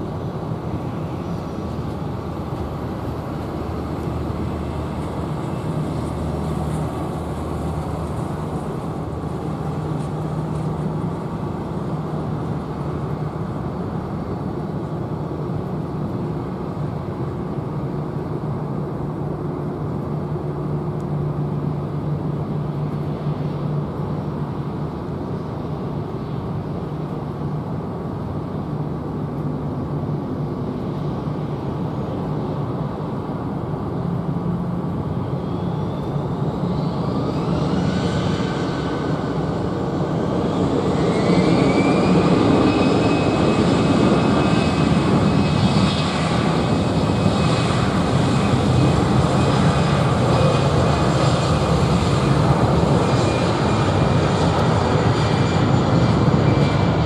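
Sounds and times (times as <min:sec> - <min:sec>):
rising engine whine: 0:00.0 - 0:27.4, 0:28.0 - 0:57.0
jet engines spooling up: 0:29.7 - 0:57.0.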